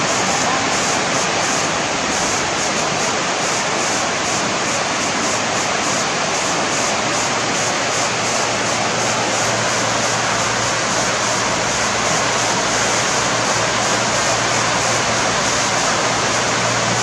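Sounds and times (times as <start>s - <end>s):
water rushing over weir: 0.0s - 17.0s.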